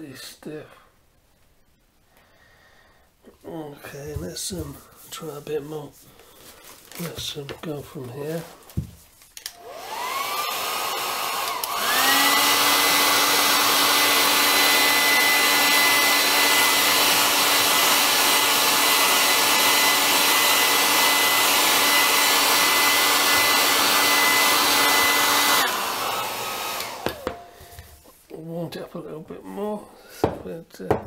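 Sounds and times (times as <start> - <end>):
hair dryer motor whine: 9.4 - 27.9.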